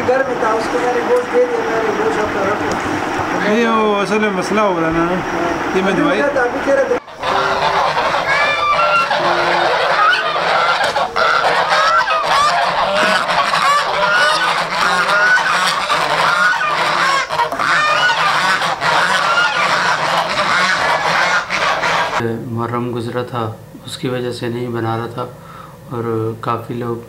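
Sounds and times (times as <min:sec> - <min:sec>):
geese honking: 0:00.0 - 0:04.4, 0:05.2 - 0:22.2.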